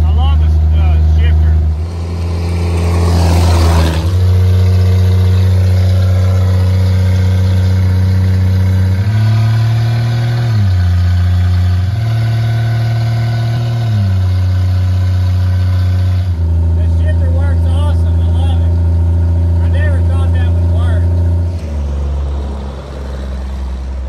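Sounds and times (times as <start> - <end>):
car engine droning from inside: 0.0 - 24.0.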